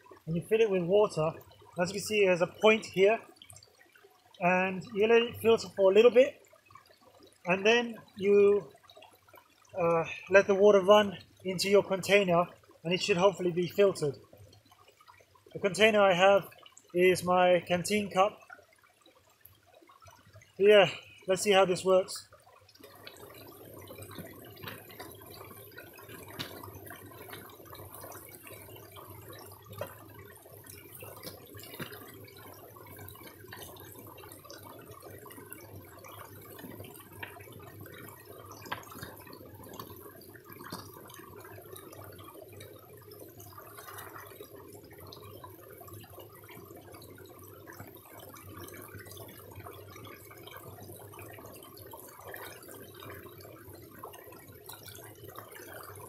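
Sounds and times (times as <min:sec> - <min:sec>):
short water splashes: 0:00.0 - 0:42.7
creek trickling over stones: 0:00.0 - 0:56.0.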